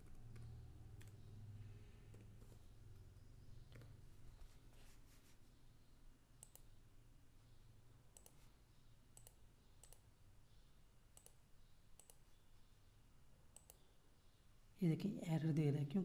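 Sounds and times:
computer mouse clicks: 0.0 - 1.3, 3.6 - 4.0, 6.4 - 6.8, 8.1 - 8.5, 9.1 - 10.1, 11.1 - 12.3, 13.5 - 13.9.

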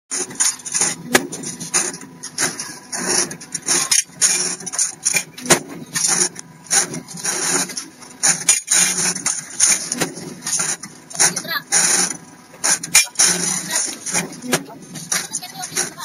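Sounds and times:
bending machine running: 0.1 - 16.0
sharp knocks: 1.0 - 1.9, 5.4 - 6.0.

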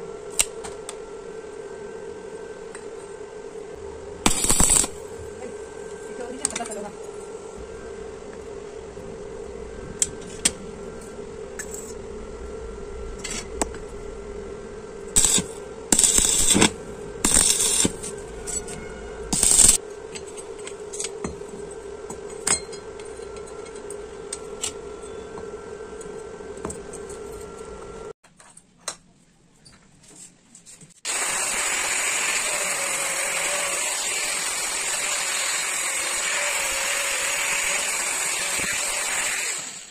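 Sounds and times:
steady welder hum: 0.0 - 28.2, 31.0 - 39.9
arc welding crackle: 4.2 - 7.6, 15.0 - 21.2, 31.0 - 39.9
welding rod clicking on metal: 4.3 - 5.0, 15.2 - 18.0, 19.4 - 19.8.

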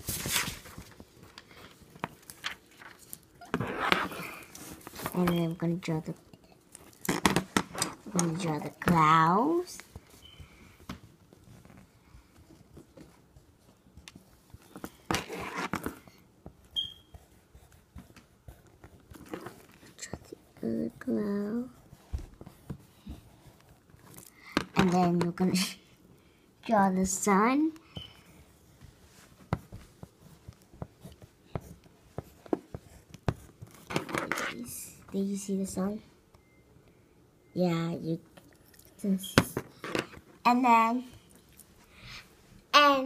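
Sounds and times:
paper rustle: 0.0 - 3.3
pencil scratching on paper: 16.7 - 23.8.

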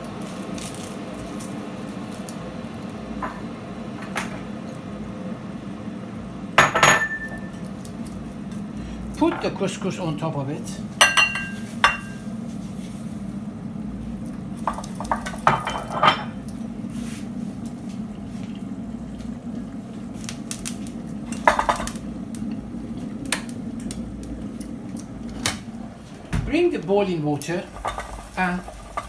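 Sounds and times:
steady low hum: 0.0 - 29.0
glass dishes clinking: 6.6 - 7.5, 11.0 - 12.2.

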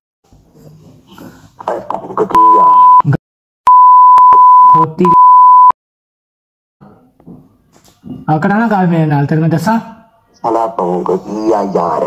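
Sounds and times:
censor bleep: 2.4 - 3.1, 3.7 - 5.8
man's voice over laptop call: 4.7 - 5.3, 8.3 - 12.0.

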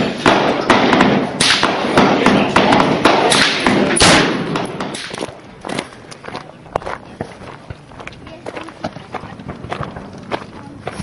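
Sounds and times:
echoing gunshots: 0.0 - 5.4.

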